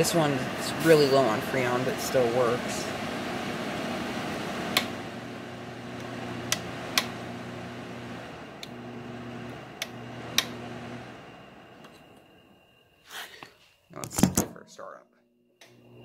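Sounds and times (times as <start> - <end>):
window air conditioner humming: 0.0 - 12.9.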